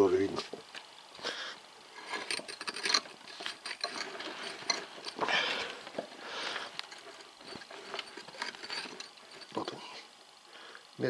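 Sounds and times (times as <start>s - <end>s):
soft rustles: 1.9s - 10.2s
timing gears clicking and rattling: 2.0s - 10.0s.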